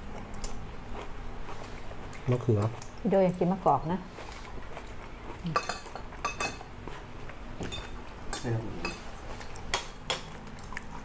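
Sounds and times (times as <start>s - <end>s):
cutlery clinking against plates: 5.5s - 6.7s, 7.6s - 9.1s.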